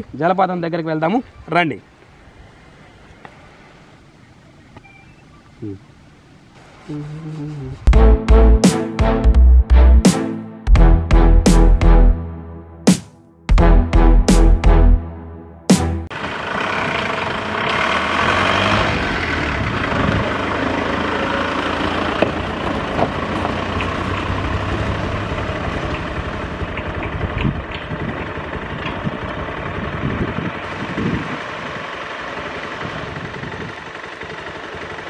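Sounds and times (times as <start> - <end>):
car engine running: 15.8 - 35.0.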